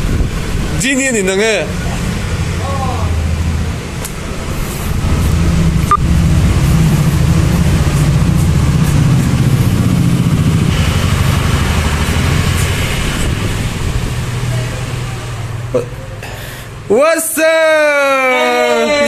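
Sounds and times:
engine low rumble: 0.0 - 16.9.

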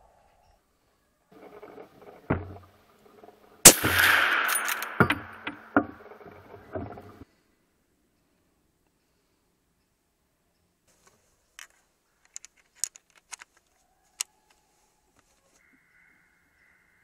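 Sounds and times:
rifle loading metallic clicks: 3.7 - 5.7, 11.6 - 14.3.

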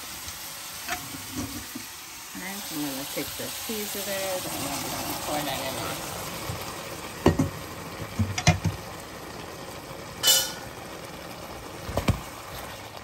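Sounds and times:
utensils clinking against pot: 10.2 - 10.6.

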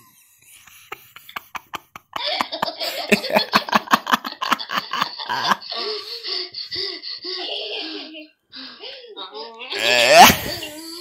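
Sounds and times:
girls laughing through a speaker: 0.6 - 8.2.

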